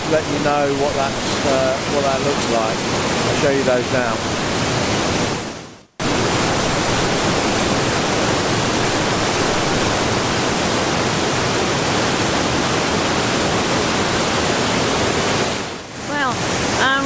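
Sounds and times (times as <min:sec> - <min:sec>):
river rushing over rocks: 0:00.0 - 0:17.0.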